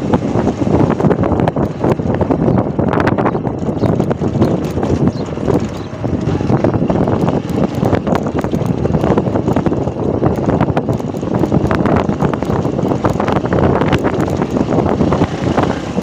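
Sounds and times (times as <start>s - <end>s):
motorcycle engine running: 0.0s - 16.0s
motorcycle rattling over bumps: 0.0s - 16.0s
wind buffeting microphone: 0.0s - 16.0s.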